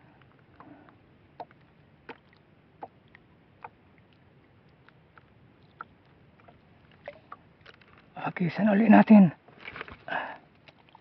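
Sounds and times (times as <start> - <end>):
soft steady hiss: 0.0 - 11.0.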